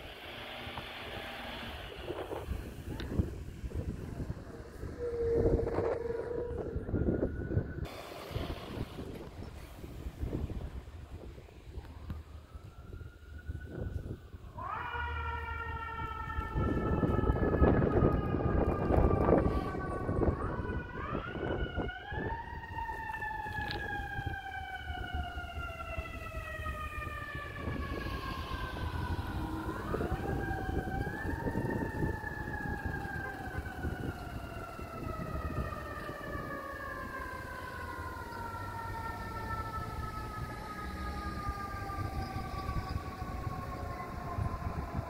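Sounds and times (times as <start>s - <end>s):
fire engine siren winding: 0.0s - 9.4s, 12.1s - 45.0s
vehicle engine rumbling: 0.0s - 14.5s, 15.6s - 45.0s.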